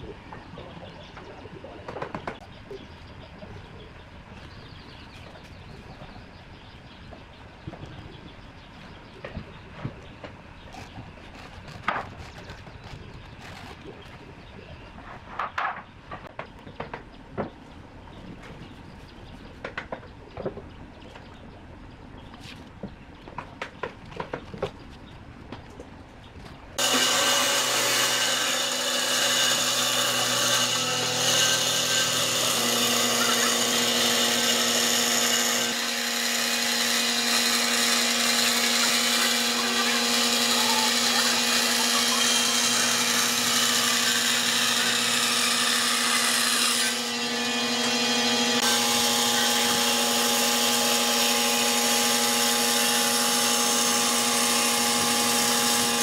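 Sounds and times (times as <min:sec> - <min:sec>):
bandsaw cutting wood: 0:26.8 - 0:56.0.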